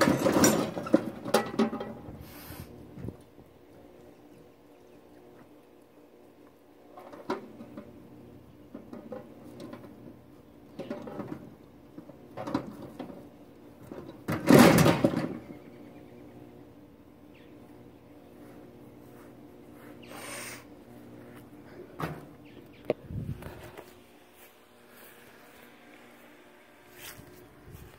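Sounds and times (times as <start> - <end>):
heavy clatter of mower dropping: 0.0 - 2.2, 8.7 - 15.6
lawn mower knocking and rattling: 0.0 - 2.2, 8.6 - 15.6.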